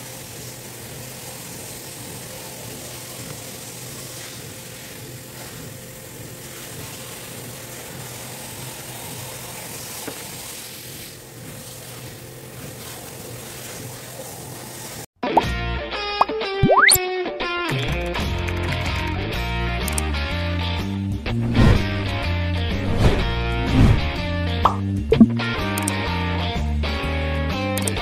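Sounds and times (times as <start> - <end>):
steady hiss: 0.0 - 15.1
low hum: 21.3 - 25.5.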